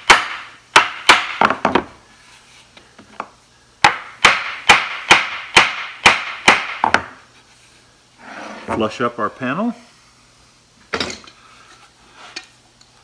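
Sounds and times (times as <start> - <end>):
hammer striking wooden frame: 0.0 - 1.9, 3.8 - 7.2.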